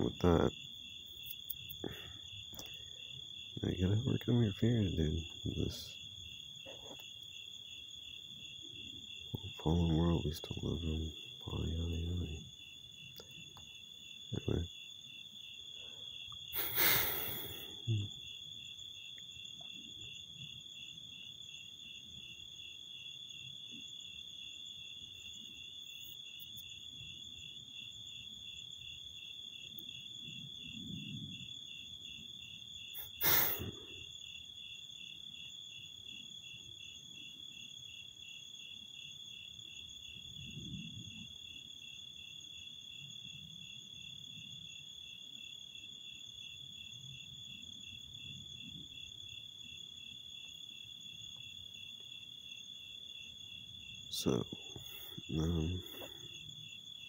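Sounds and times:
crickets trilling: 0.0s - 57.0s.

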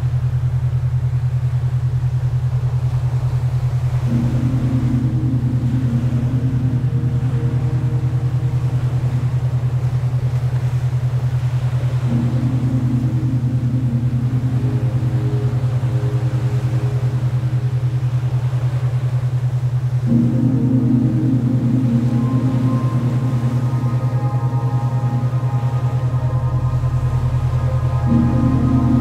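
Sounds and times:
ambient electronic music: 0.0s - 29.0s.

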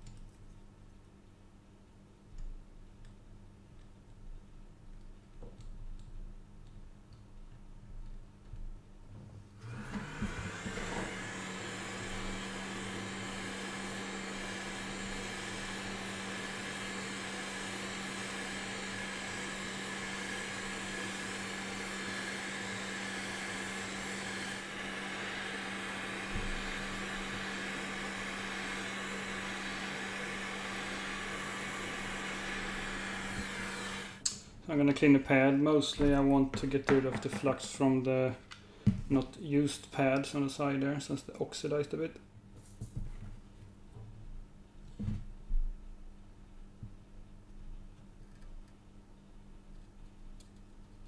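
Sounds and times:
hot-air station blowing: 9.6s - 34.4s.

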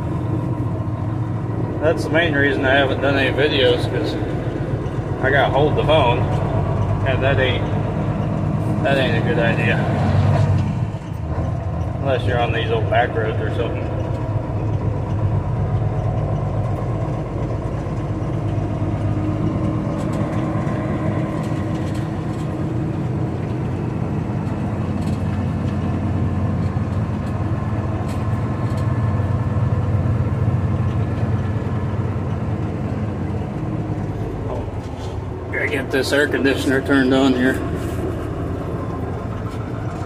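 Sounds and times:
truck diesel engine running: 0.0s - 40.0s.

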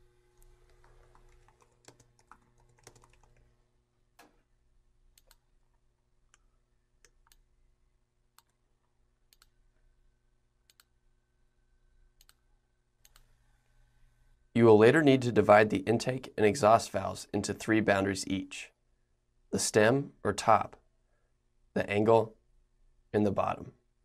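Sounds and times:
computer keyboard typing: 0.4s - 3.5s, 5.2s - 5.4s
computer mouse clicks: 5.1s - 5.4s, 6.3s - 7.5s, 8.4s - 8.6s, 9.3s - 9.6s, 10.7s - 10.9s, 12.2s - 12.4s, 13.0s - 13.3s.

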